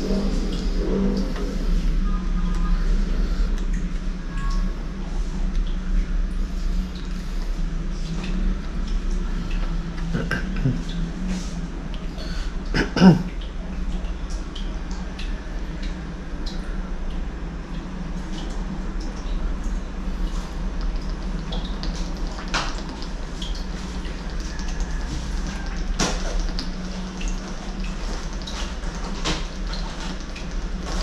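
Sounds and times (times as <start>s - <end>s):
steady low hum: 0.0s - 31.0s
person gulping water: 9.6s - 13.7s
throat sound like a cough: 12.7s - 13.4s.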